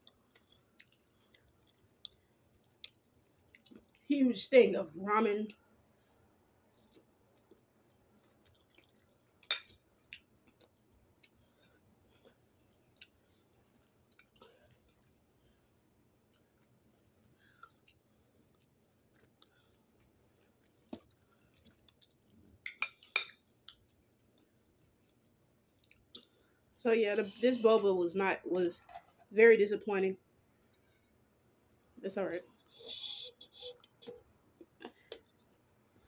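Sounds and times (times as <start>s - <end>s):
person chewing: 0.0s - 4.0s, 6.6s - 26.8s, 31.7s - 36.0s.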